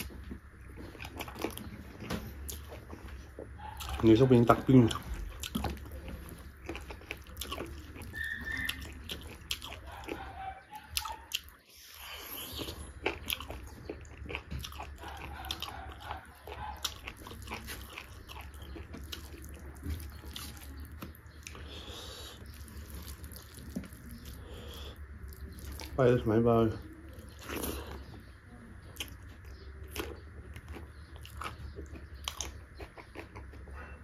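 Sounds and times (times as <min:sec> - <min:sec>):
person chewing with wet mouth clicks: 0:04.8 - 0:10.2, 0:10.8 - 0:11.5, 0:12.4 - 0:21.7, 0:28.9 - 0:33.7.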